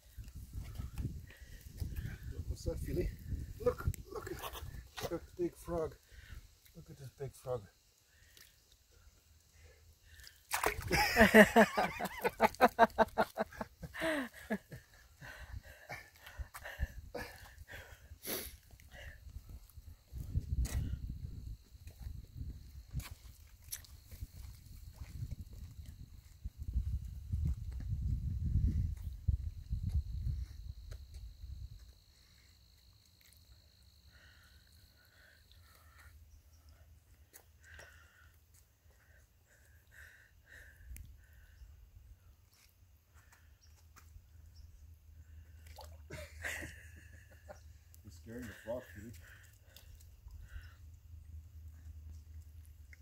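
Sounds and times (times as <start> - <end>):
insect trilling: 1.9 - 21.6
frog splashing into pool: 10.4 - 11.4, 45.6 - 46.3
rapid rhythmic laughter: 10.8 - 16.2
low rumble on microphone: 24.2 - 31.8.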